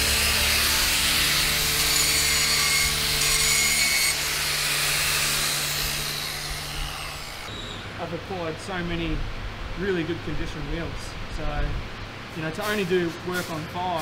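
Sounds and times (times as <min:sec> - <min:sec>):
angle grinder grinding steel: 0:00.0 - 0:07.5.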